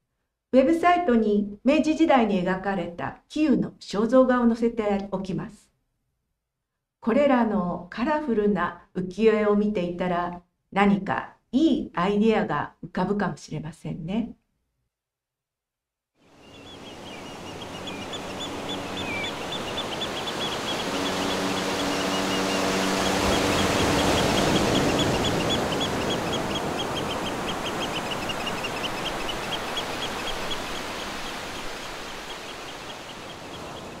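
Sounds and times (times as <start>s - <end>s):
surf-like wash: 16.5s - 34.0s.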